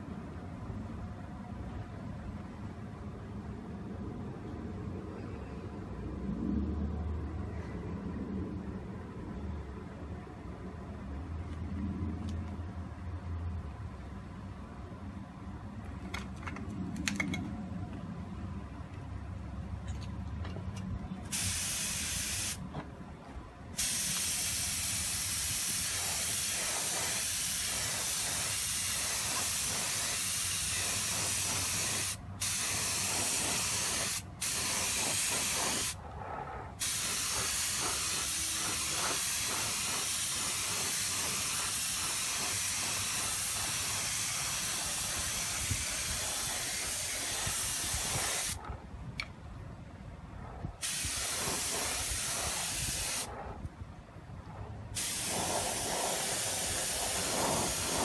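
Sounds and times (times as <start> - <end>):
spray gun hissing: 21.3 - 22.6, 23.8 - 36.0, 36.8 - 48.6, 50.8 - 53.3, 55.0 - 58.0.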